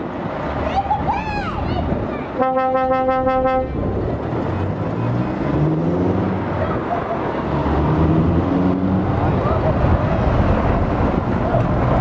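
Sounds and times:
truck diesel engines running: 0.0s - 12.0s
truck pulling away: 3.7s - 12.0s.

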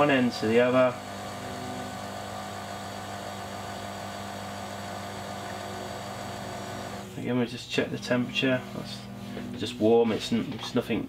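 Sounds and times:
small electric motor humming: 0.4s - 7.2s.

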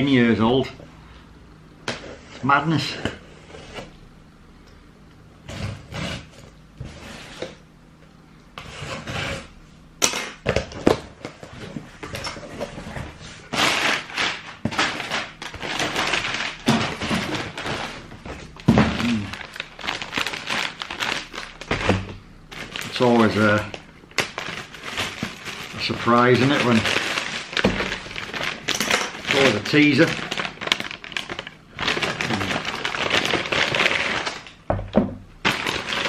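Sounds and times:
packaging knocks and thunks: 10.4s - 36.0s
plastic bag rustling and crinkling: 11.5s - 34.6s, 35.4s - 36.0s.

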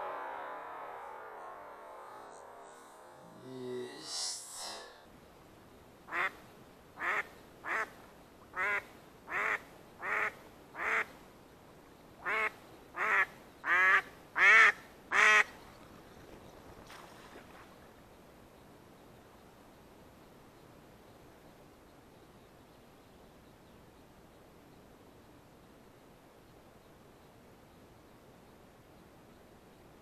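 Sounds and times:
duck quacking: 6.1s - 6.4s, 7.0s - 7.9s, 8.6s - 11.1s, 12.2s - 15.5s.

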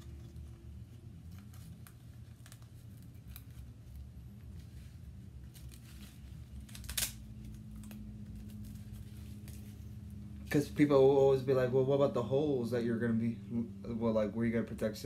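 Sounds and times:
face mask clicks and rustles: 0.0s - 10.1s.

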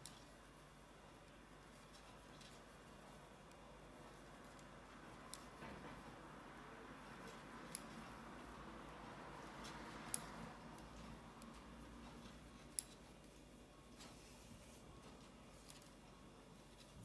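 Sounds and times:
knitting needles clicking: 0.0s - 0.4s, 1.2s - 5.6s, 7.0s - 13.4s
faint room noise: 0.0s - 17.0s.

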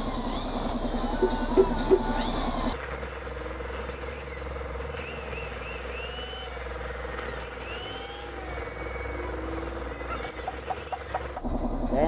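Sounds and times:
electric drill boring into metal: 2.7s - 11.4s.

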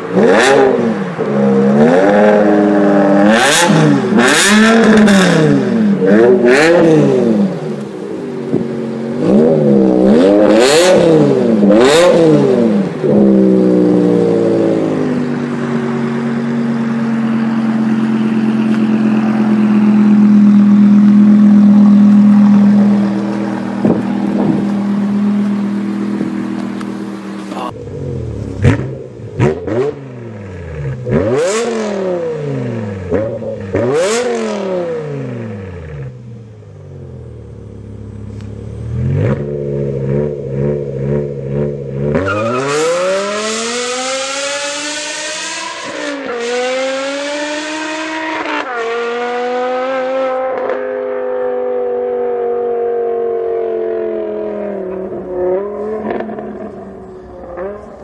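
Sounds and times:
car engine throttle blips: 2.8s - 42.6s
car engine idling: 13.3s - 29.5s, 36.1s - 40.0s, 54.8s - 58.0s
car accelerating through gears: 38.4s - 58.0s.

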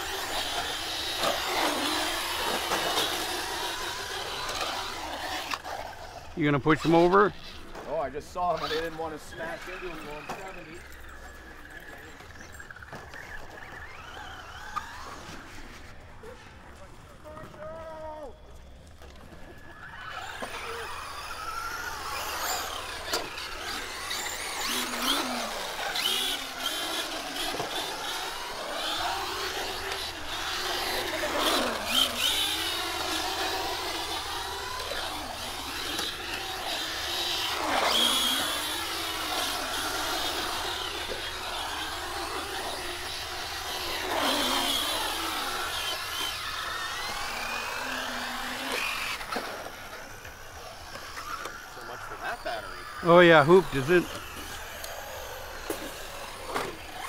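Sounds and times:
electric rc car motors whining: 0.0s - 57.0s.

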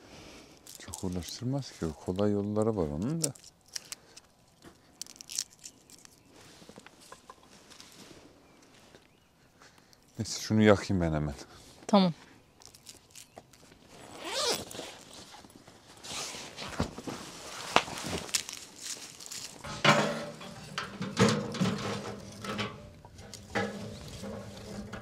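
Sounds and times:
dishes clicking and knocking: 19.7s - 25.0s.

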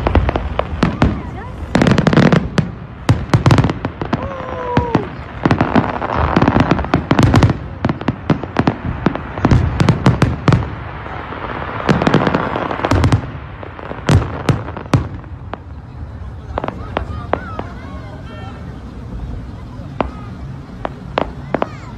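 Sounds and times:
crackling hiss: 0.0s - 21.9s.

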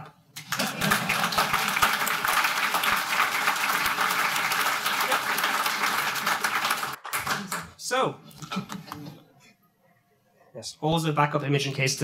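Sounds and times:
audience applauding: 0.4s - 7.7s.

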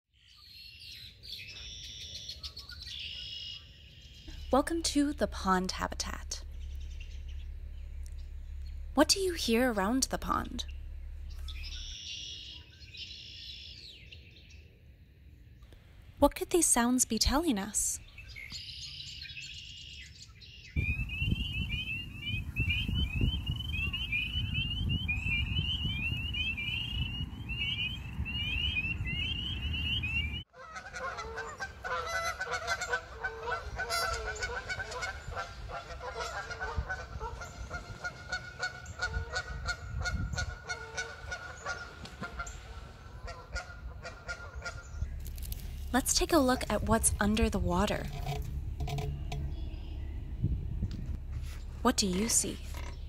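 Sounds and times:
frogs calling: 1.5s - 14.0s
wind rumble on microphone: 20.8s - 53.0s
geese honking: 30.6s - 50.0s.

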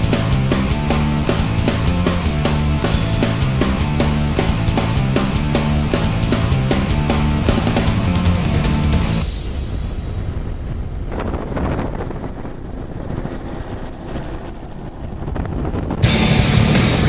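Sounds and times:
loud rock music: 0.0s - 10.0s, 16.0s - 17.0s
vehicle engine rumble: 0.0s - 17.0s.

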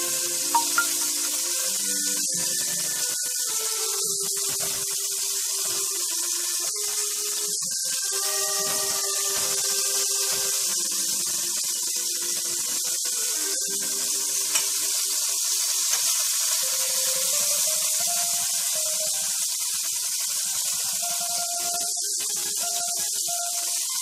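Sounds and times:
chicken sizzling in hot oil: 0.0s - 24.0s
tongs clicking against pan: 14.4s - 14.8s.

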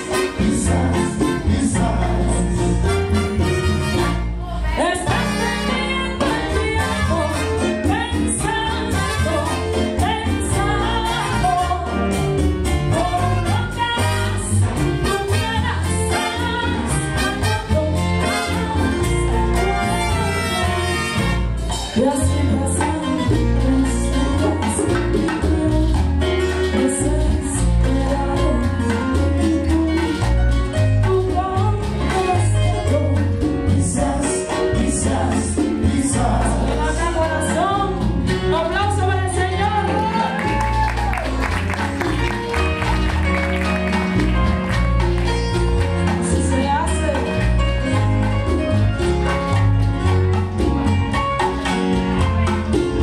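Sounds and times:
bass line: 0.0s - 53.0s
live band music: 0.0s - 53.0s
woman singing into microphone: 4.4s - 12.1s, 12.8s - 21.2s, 21.8s - 41.3s, 46.2s - 47.5s.

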